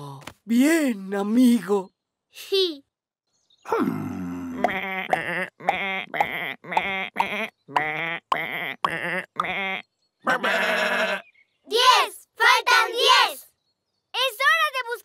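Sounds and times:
cartoon sheep bleating: 0:04.5 - 0:11.2.

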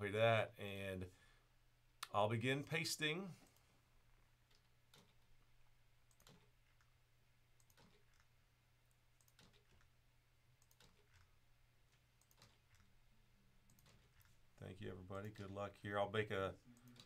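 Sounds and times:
computer mouse clicks: 0:04.4 - 0:05.3, 0:06.0 - 0:06.9, 0:07.6 - 0:08.3, 0:08.9 - 0:09.9, 0:10.6 - 0:11.3, 0:11.9 - 0:12.9, 0:13.7 - 0:14.4, 0:16.8 - 0:17.0.

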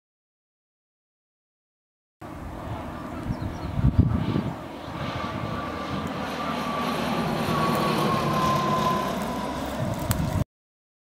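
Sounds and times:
propeller plane engine droning: 0:02.2 - 0:10.5
whine dropping in pitch: 0:02.7 - 0:10.4.

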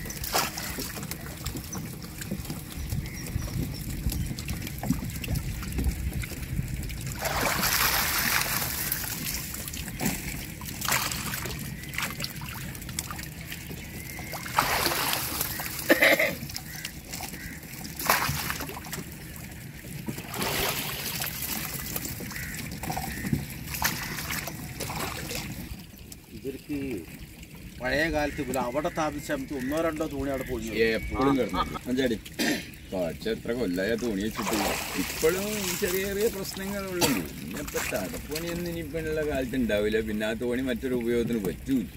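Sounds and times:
water pouring off net: 0:00.0 - 0:25.9, 0:34.0 - 0:41.4
water splashing and sloshing: 0:00.0 - 0:41.9.

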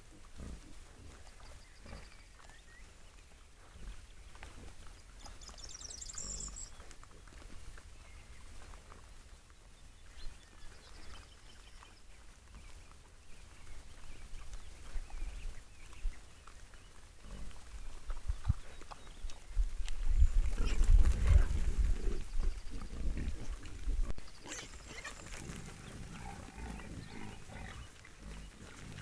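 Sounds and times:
wild boars grunting: 0:17.2 - 0:17.7, 0:20.4 - 0:29.0.

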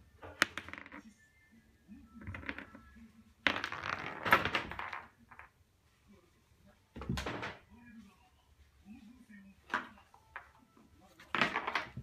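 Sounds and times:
toy ball clattering on wooden floor: 0:00.2 - 0:01.1, 0:02.2 - 0:05.6, 0:11.3 - 0:12.0.

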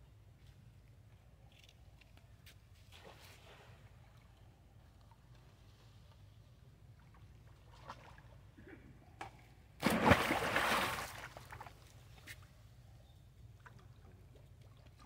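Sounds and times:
loud splash into water: 0:09.8 - 0:11.3
churning water: 0:09.8 - 0:11.8.

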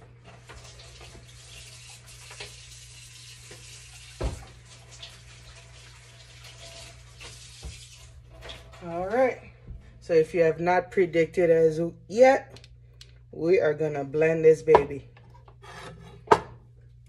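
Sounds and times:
water running from a tap: 0:00.0 - 0:08.9.

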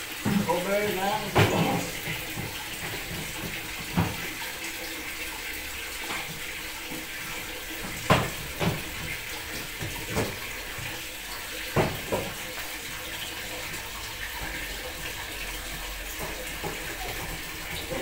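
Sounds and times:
water splashing in plastic tub: 0:00.0 - 0:18.0
knocks against plastic tub: 0:01.2 - 0:04.3, 0:07.8 - 0:10.9, 0:11.7 - 0:12.4.

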